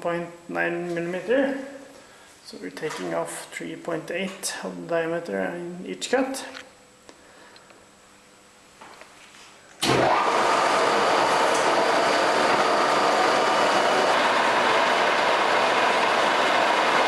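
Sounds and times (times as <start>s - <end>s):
lathe running: 9.8s - 17.0s.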